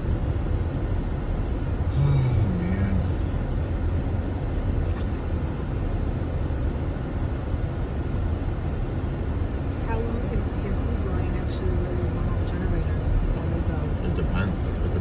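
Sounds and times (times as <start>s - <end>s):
car tyres and engine rumble: 0.0s - 15.0s
voice murmur: 1.9s - 3.1s.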